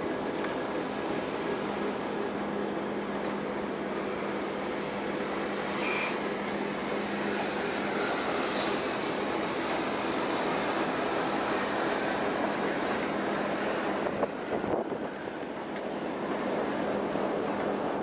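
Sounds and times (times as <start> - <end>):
steam hissing: 0.0 - 18.0
brief high squeaks: 5.7 - 6.2.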